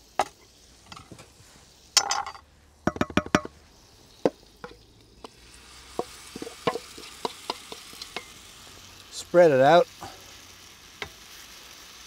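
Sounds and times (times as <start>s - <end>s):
batter sizzling in pan: 0.0s - 12.0s
wooden spoon tapping steel bowl: 2.9s - 3.5s.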